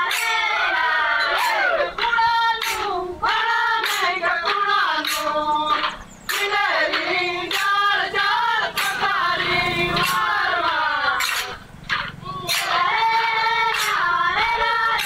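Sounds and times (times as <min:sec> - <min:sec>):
women singing folk song: 0:00.0 - 0:15.0
sharp knocks: 0:03.8 - 0:07.7, 0:11.2 - 0:12.8.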